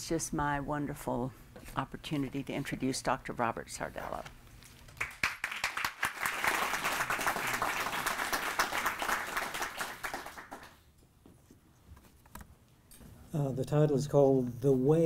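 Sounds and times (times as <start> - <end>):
audience applauding: 5.0 - 10.8.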